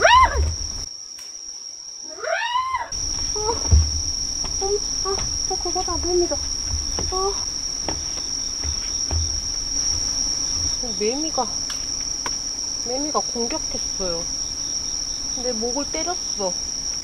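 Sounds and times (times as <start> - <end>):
low thumps: 0.0 - 0.9, 2.9 - 12.5
night insects chirring: 0.0 - 17.0.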